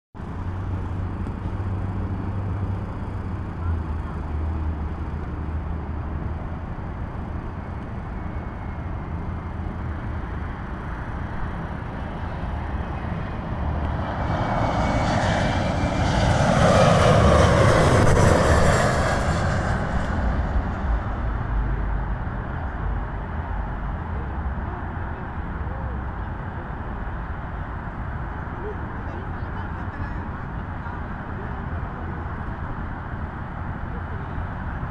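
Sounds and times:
falling engine whine: 0.2s - 26.6s
jet engine passing overhead: 0.2s - 34.9s
steady low rumble: 0.2s - 34.9s.

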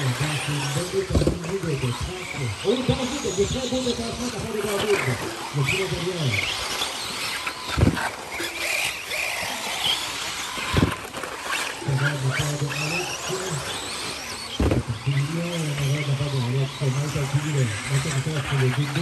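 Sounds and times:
rc car motors whining: 0.0s - 19.0s
dull thumps: 7.8s - 8.0s, 10.7s - 11.0s.

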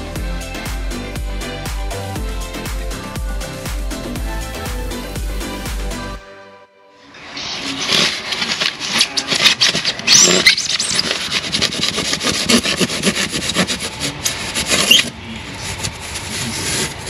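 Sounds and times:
handsaw cutting insulation board: 7.2s - 17.0s.

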